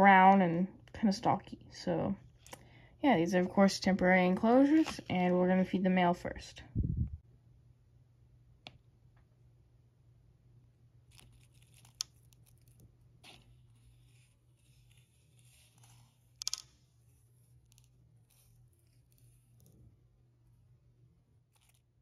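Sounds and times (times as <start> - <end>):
tweezers clicking and rustling: 11.1 - 19.8.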